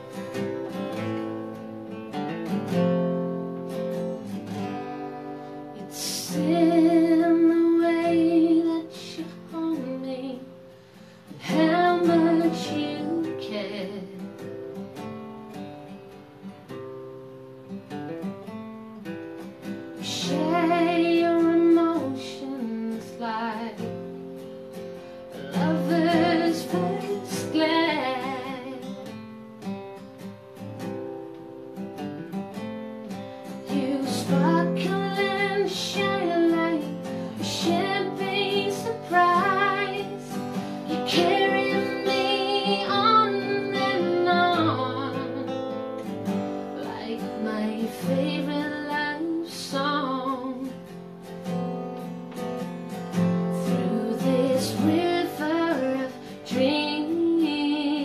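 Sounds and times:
acoustic guitar: 0:00.0 - 0:58.0
woman singing: 0:05.4 - 0:14.5, 0:20.0 - 0:24.4, 0:25.3 - 0:29.2, 0:33.5 - 0:51.1, 0:53.1 - 0:58.0.

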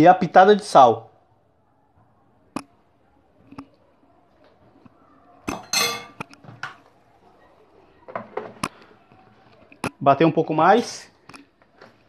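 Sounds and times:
spoon clinking on containers: 0:05.5 - 0:06.2.

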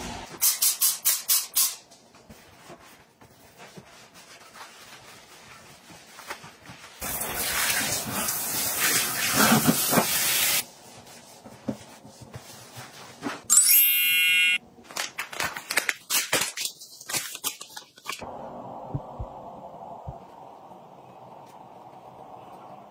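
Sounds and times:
cloth wiping a sink: 0:02.1 - 0:13.4.

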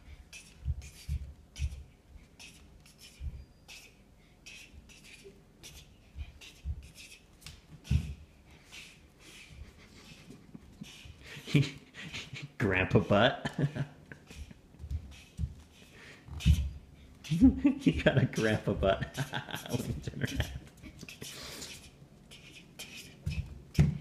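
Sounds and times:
bare feet thumping on wooden floor: 0:07.8 - 0:08.2, 0:14.8 - 0:15.7, 0:23.3 - 0:24.0.

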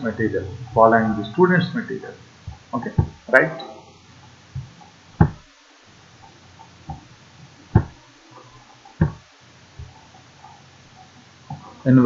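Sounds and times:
sharp knocks: 0:02.5 - 0:03.2, 0:04.6 - 0:05.5, 0:07.7 - 0:08.0, 0:09.0 - 0:09.2.

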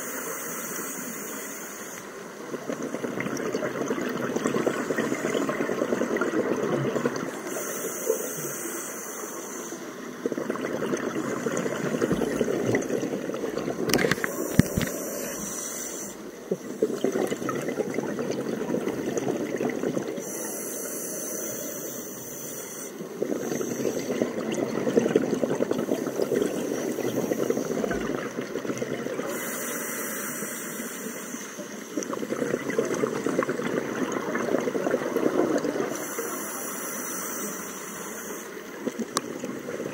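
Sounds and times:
regulator hissing inhale: 0:00.0 - 0:02.2, 0:07.4 - 0:10.1, 0:14.1 - 0:16.9, 0:20.2 - 0:24.3, 0:26.0 - 0:28.0, 0:29.2 - 0:32.0, 0:35.9 - 0:38.8
exhaled bubbles rumbling: 0:10.2 - 0:20.2, 0:23.1 - 0:29.3, 0:32.0 - 0:35.9.

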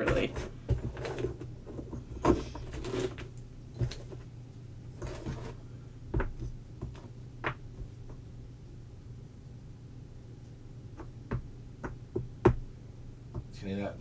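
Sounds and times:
soft handling noise: 0:00.0 - 0:08.3.

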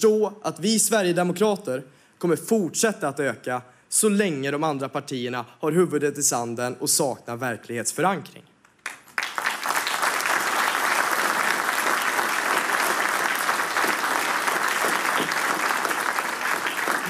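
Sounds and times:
large audience applauding: 0:08.8 - 0:17.0.

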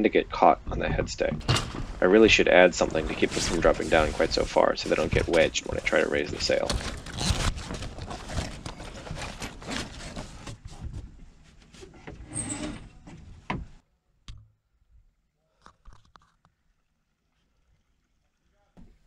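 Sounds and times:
sailcloth rustling: 0:01.8 - 0:12.0.

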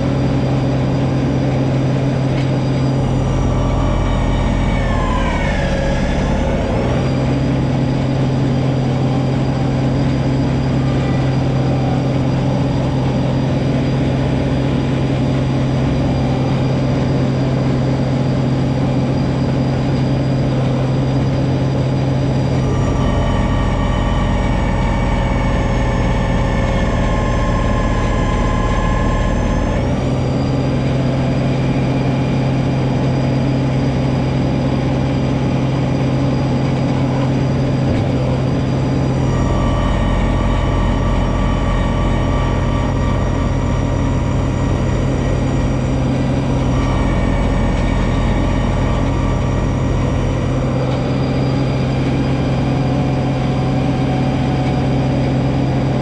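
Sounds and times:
snowblower through deep snow: 0:00.0 - 0:56.0
tractor diesel engine running: 0:00.0 - 0:56.0.

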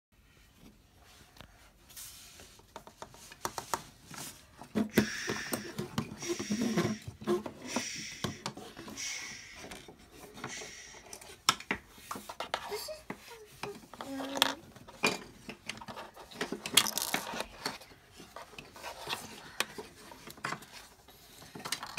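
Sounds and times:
breathy noise: 0:04.8 - 0:11.4
plastic bricks clicking and knocking: 0:11.2 - 0:17.8.

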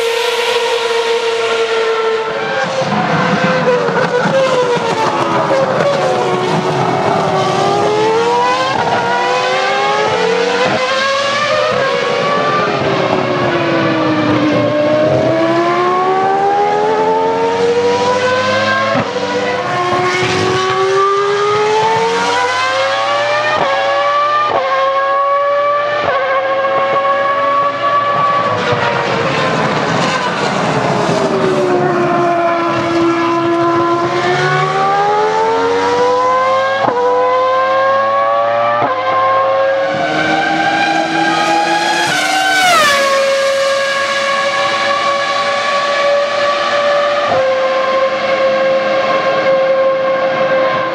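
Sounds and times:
racing car engines revving: 0:00.0 - 0:50.9.

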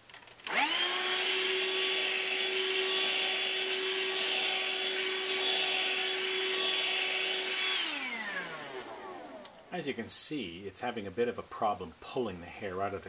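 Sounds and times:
handheld vacuum motor whining: 0:00.4 - 0:09.7.

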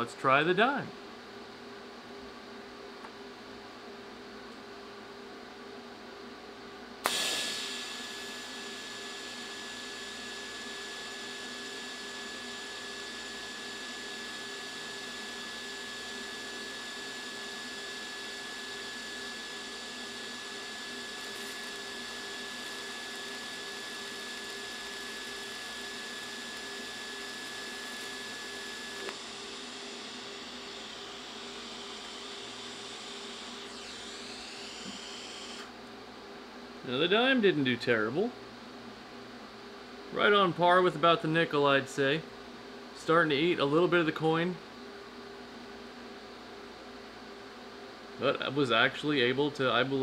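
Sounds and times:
arc striking snap: 0:07.0 - 0:08.0
welder click: 0:07.0 - 0:08.5, 0:29.0 - 0:29.3
welding arc hissing and whining: 0:07.0 - 0:35.7.

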